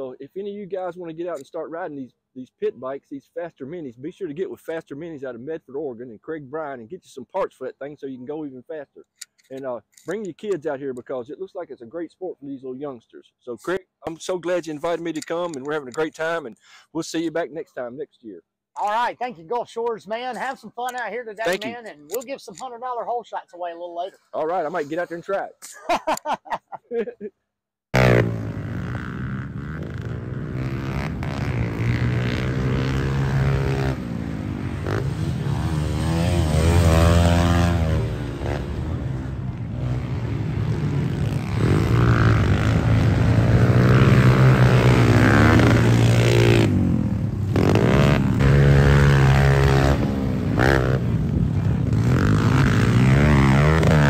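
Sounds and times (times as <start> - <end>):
pit bike engines revving: 21.4 - 22.2, 28.0 - 54.0.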